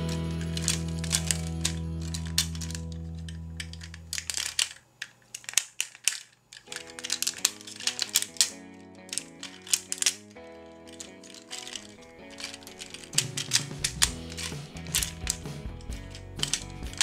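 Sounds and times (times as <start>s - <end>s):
background music: 0.0s - 2.9s, 8.2s - 17.0s
plastic toy parts clicking: 0.0s - 17.0s.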